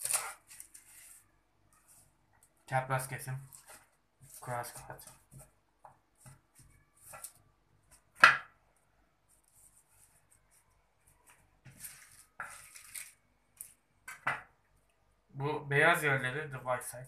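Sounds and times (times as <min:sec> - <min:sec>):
knife cutting lettuce on wooden board: 0:00.0 - 0:00.7.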